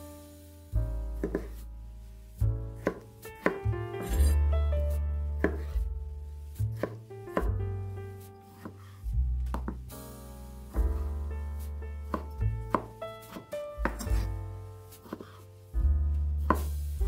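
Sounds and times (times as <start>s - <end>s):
knife knocking on cutting board: 1.2s - 1.5s, 12.1s - 14.3s
knife slicing tomatoes: 1.2s - 1.7s, 2.7s - 7.6s, 8.2s - 9.9s, 11.0s - 15.5s, 16.4s - 16.9s.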